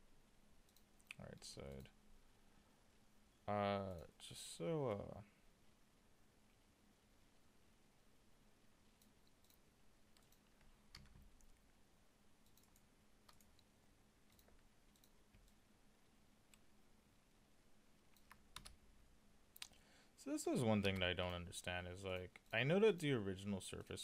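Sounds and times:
faint computer mouse clicks: 9.0 - 11.6, 12.4 - 13.7.

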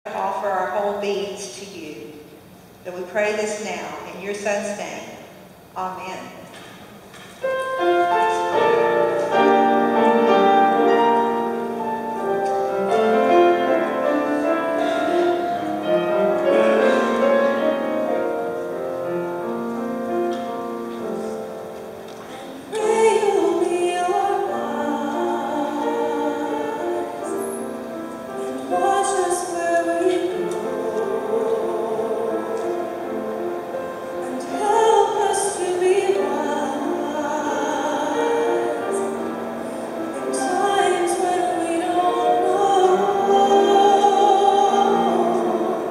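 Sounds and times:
slow grand piano: 6.4 - 45.9
woman singing with vibrato: 22.3 - 27.7, 28.3 - 33.2, 34.0 - 39.5, 40.1 - 45.9.

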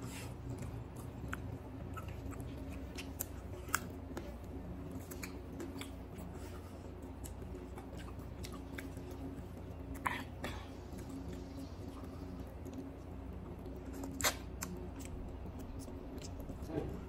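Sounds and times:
faint steady hum: 0.0 - 17.0
man chewing food: 0.0 - 17.0.

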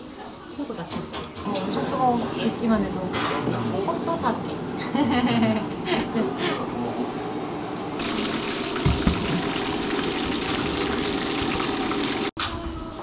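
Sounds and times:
skewers deep-frying in oil: 8.0 - 12.3.

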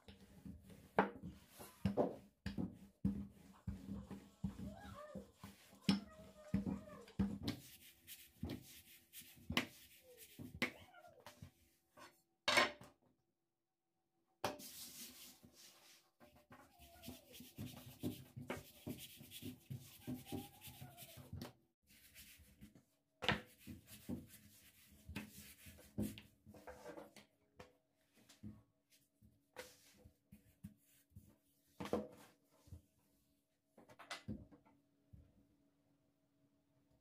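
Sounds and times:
food rubbed and knocked on surface: 0.2 - 10.8, 14.5 - 27.0.

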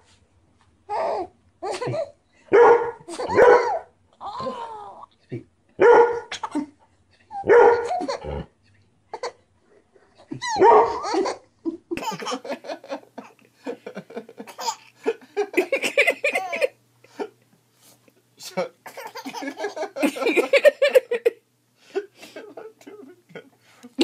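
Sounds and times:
baby laughing: 0.9 - 2.2, 3.1 - 5.1, 10.2 - 12.6, 14.4 - 15.0, 15.6 - 16.8, 18.9 - 21.2
small dog barking: 2.5 - 3.8, 5.8 - 6.3, 7.4 - 7.9, 10.6 - 11.0.

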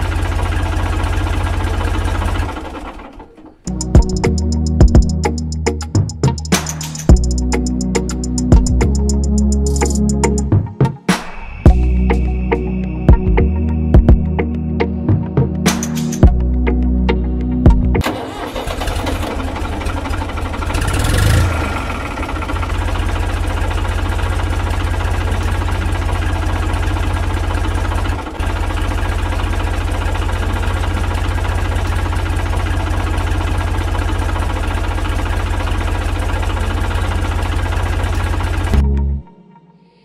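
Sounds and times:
tractor engine chugging: 0.0 - 10.5, 17.7 - 38.8.

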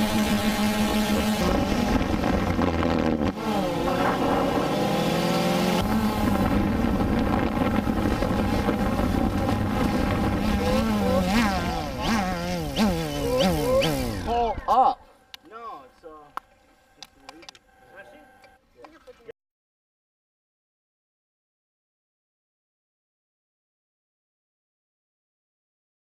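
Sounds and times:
drone propellers buzzing: 0.0 - 15.3.

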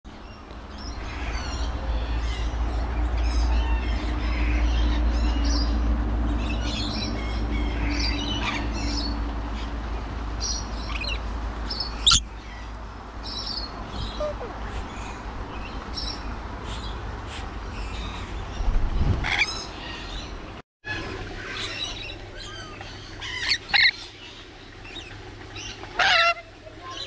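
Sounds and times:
lorikeets chattering: 10.4 - 12.3.

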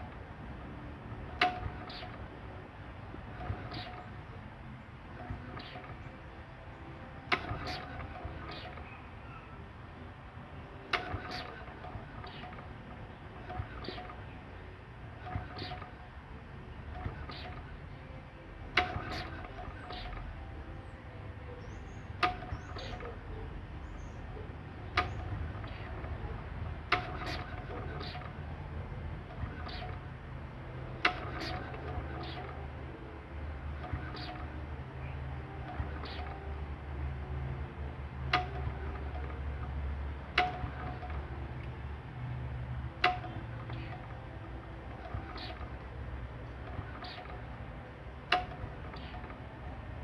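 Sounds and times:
sharp metallic clicks: 1.2 - 2.3, 7.3 - 9.0, 10.9 - 14.4, 16.8 - 18.0, 18.7 - 20.4, 21.6 - 23.3, 23.9 - 28.4, 30.9 - 32.8, 33.7 - 34.6, 38.2 - 41.8, 42.8 - 44.2.

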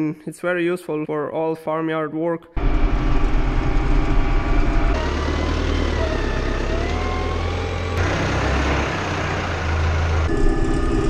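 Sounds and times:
tractor diesel engine running: 2.6 - 11.0
faint whine: 10.3 - 11.0.

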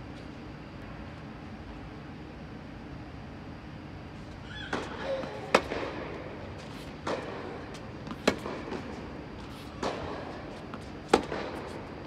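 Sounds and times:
tennis ball struck by racquets: 4.7 - 11.8.

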